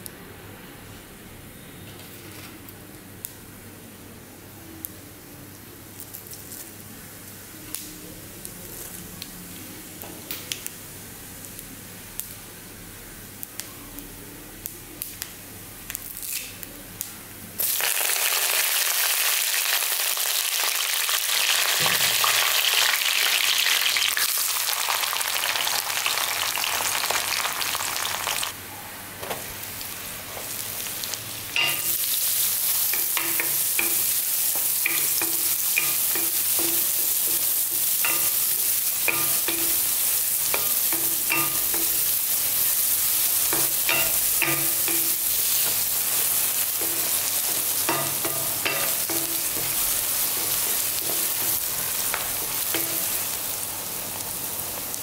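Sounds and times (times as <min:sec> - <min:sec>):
onion and garlic sizzling: 0:04.4 - 0:28.6, 0:29.2 - 0:55.0
seeds crackling in hot oil: 0:04.8 - 0:28.6, 0:29.6 - 0:55.0
leaves sizzling in oil: 0:05.9 - 0:13.7, 0:14.6 - 0:16.7, 0:17.5 - 0:28.6, 0:29.3 - 0:55.0
spatula stirring: 0:43.1 - 0:53.3.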